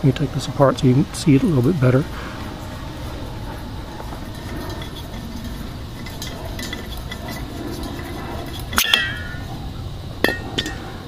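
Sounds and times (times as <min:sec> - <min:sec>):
steady low rumble: 0:00.0 - 0:11.0
metallic clicks and scrapes: 0:02.6 - 0:09.6.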